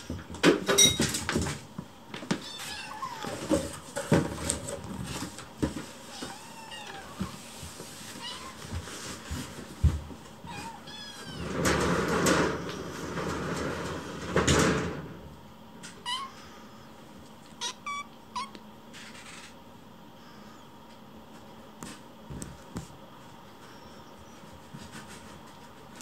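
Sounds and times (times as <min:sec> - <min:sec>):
kittens meowing: 0:02.4 - 0:03.5, 0:06.1 - 0:07.4, 0:15.9 - 0:18.7, 0:20.2 - 0:20.7, 0:23.6 - 0:24.4
loud scraping rustle: 0:10.6 - 0:15.0.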